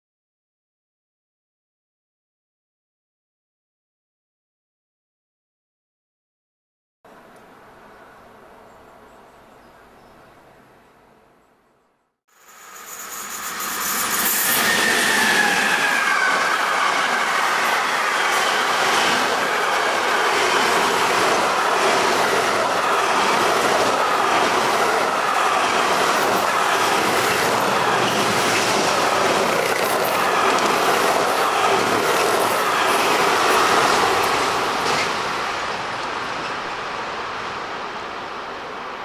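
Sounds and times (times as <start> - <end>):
train wheels rumbling on rails: 12.4 - 38.0.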